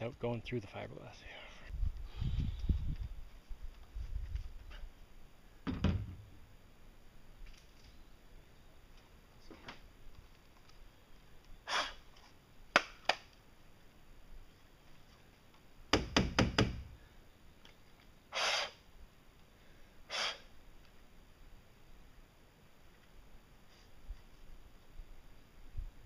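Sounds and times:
short hisses: 0:11.6 - 0:12.0, 0:18.3 - 0:18.8, 0:20.1 - 0:20.5
knocks: 0:15.9 - 0:16.8.

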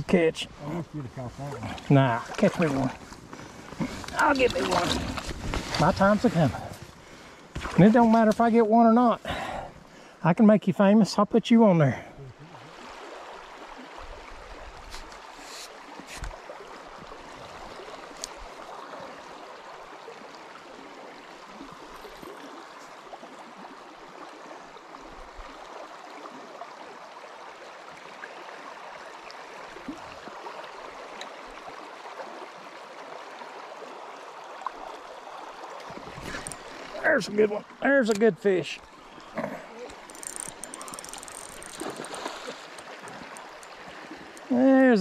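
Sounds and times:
river water rushing over riffles: 0:00.0 - 0:08.0, 0:12.4 - 0:45.0
faint clicks: 0:39.8 - 0:44.5.

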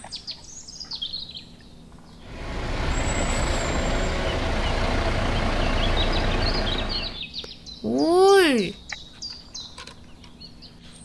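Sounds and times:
truck engine rumble: 0:02.2 - 0:07.2.

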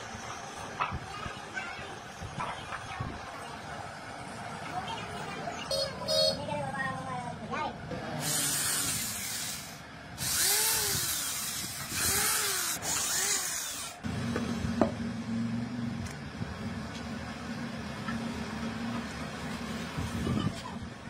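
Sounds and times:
electric power tool working wood: 0:08.2 - 0:14.0.

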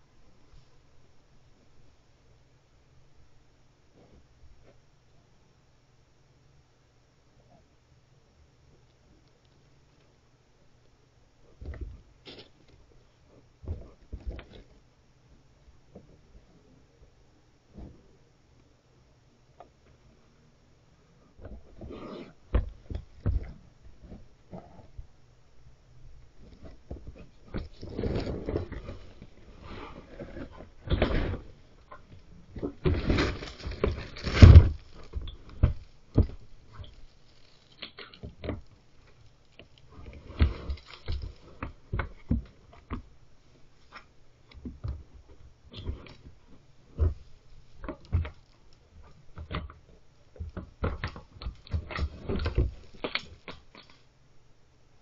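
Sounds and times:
plastic bin scraping and clattering: 0:32.6 - 0:37.6.

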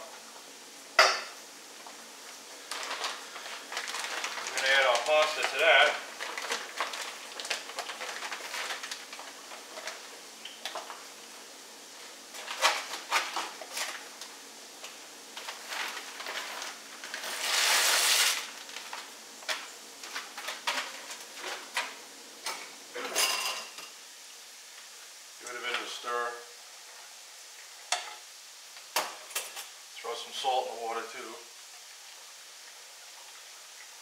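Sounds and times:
plastic bag crinkling: 0:02.4 - 0:11.0, 0:12.3 - 0:14.3, 0:15.3 - 0:22.0.

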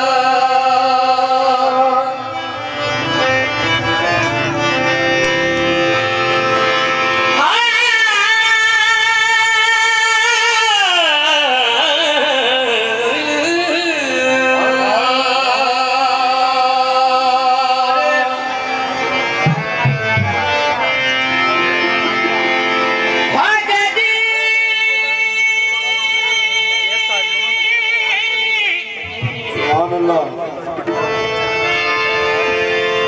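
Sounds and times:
person singing devotional song: 0:00.0 - 0:18.4
instrumental accompaniment: 0:00.0 - 0:33.0.

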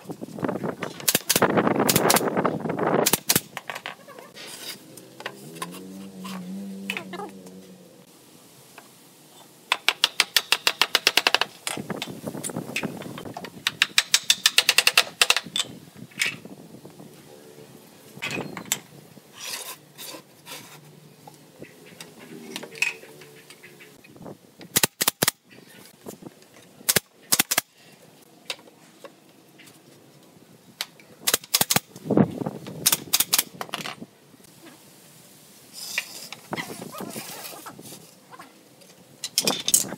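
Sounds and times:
nail gun firing: 0:01.0 - 0:02.3, 0:03.0 - 0:03.5, 0:24.7 - 0:25.4, 0:26.9 - 0:27.7, 0:31.2 - 0:31.8.

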